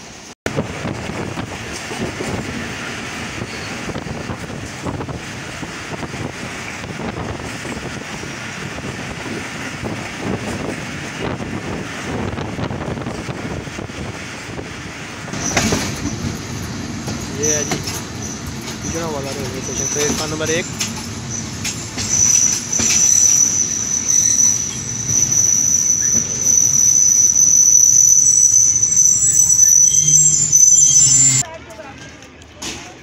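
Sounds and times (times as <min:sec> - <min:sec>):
train wheels rumbling on track: 0:00.0 - 0:33.0
wind buffeting microphone: 0:00.5 - 0:19.0.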